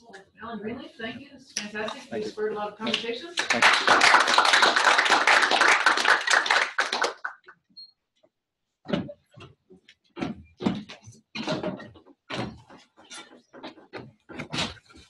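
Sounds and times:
audience applauding: 0:03.4 - 0:07.5.

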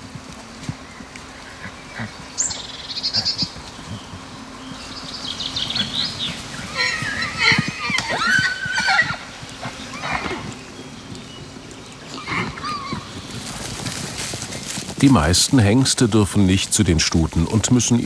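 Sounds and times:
horses squealing: 0:05.5 - 0:15.9.

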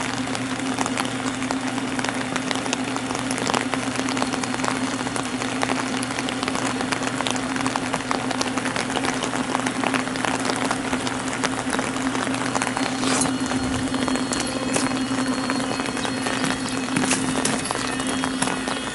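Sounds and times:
rain drops hitting surfaces: 0:00.0 - 0:18.9
low hum: 0:10.2 - 0:18.9.

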